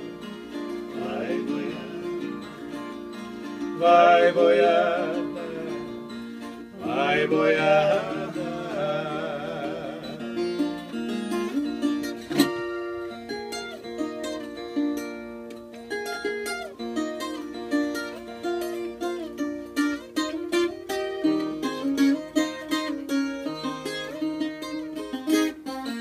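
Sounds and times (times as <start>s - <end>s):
plucked folk guitar solo: 0.0s - 26.0s.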